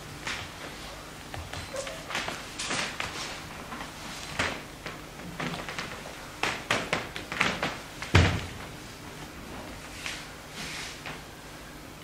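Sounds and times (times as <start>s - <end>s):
knocks and thumps on a stage: 4.4s - 8.8s.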